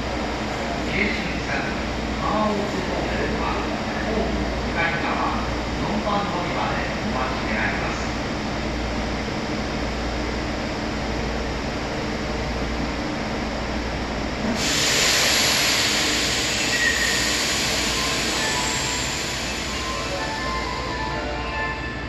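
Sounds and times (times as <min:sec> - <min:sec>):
train low rumble: 0:00.0 - 0:22.0
loud hiss of air: 0:14.5 - 0:20.4.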